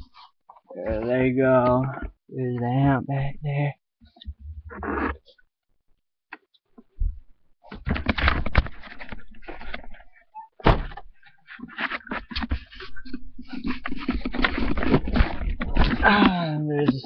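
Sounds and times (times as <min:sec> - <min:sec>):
sharp thunk: 0:10.6 - 0:11.0.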